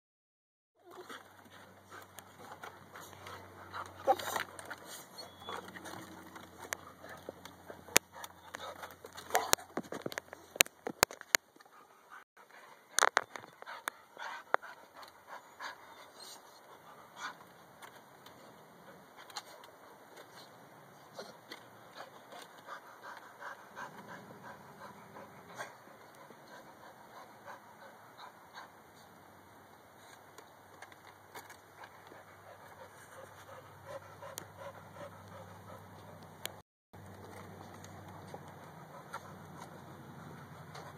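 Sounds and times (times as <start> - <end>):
dog panting: 0.9 - 9.6, 11.6 - 17.6, 21.2 - 29.1, 31.4 - 36.6
dog whimpering: 5.0 - 6.0.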